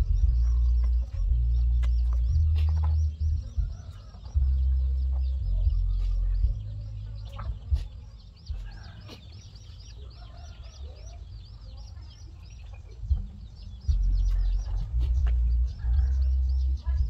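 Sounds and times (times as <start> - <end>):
loud low rumble: 0.0 - 8.9, 13.0 - 17.0
hens clucking: 0.0 - 17.0.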